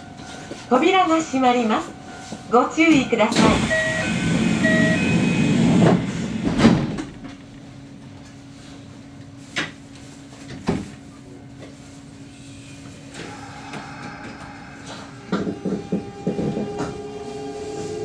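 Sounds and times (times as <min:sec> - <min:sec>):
low steady train hum: 0:00.0 - 0:18.0
sliding doors closing with thud: 0:03.3 - 0:07.4, 0:15.2 - 0:18.0.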